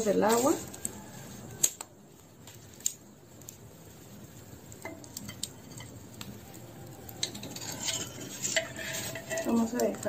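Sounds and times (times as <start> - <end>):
metal strainer clinking on clay pot: 7.2 - 10.0.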